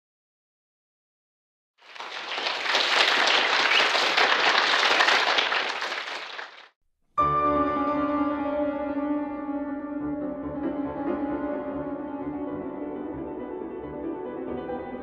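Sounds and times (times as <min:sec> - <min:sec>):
audience applauding: 0:01.8 - 0:06.7
grand piano playing: 0:07.2 - 0:15.0.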